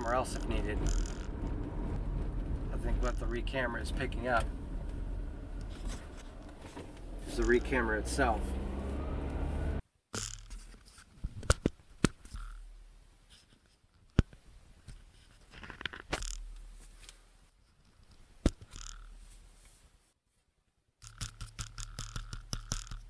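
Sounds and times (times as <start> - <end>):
faint low rumble: 0.0 - 8.6
light scraping: 2.4 - 8.5
sharp clicks and taps: 21.0 - 23.0.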